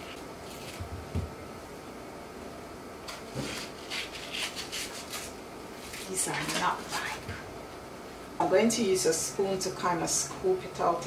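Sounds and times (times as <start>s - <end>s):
knife scraping and slicing mango: 3.1s - 7.0s.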